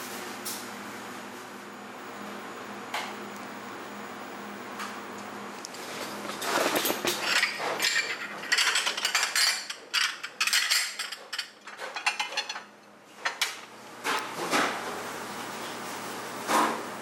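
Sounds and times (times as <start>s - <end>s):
kitchen clicks and scrapes: 5.7s - 14.3s.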